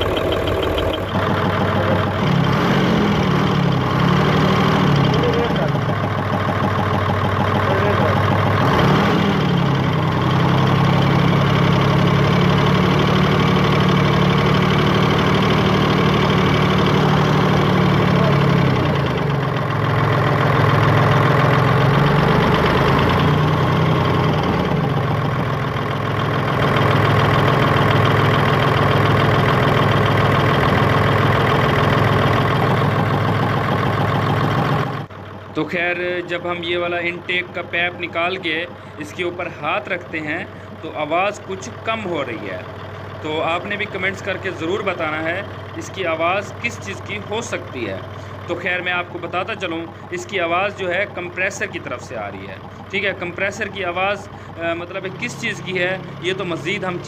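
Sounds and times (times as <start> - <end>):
abnormal compressor noise: 0.0 - 35.1
diesel engine idling: 0.0 - 57.0.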